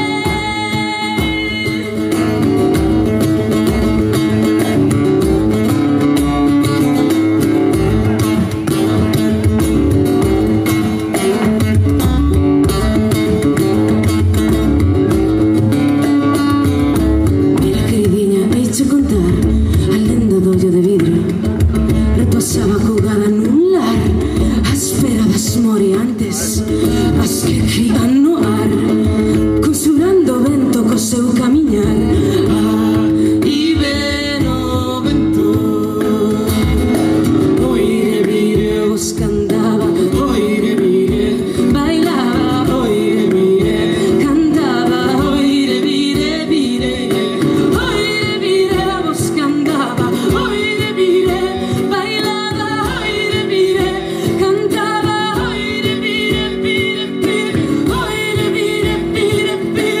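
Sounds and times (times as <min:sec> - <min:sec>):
woman singing: 0:00.0 - 0:08.3, 0:08.9 - 1:00.0
frame drum beat: 0:00.0 - 1:00.0
strummed acoustic guitar: 0:00.0 - 1:00.0.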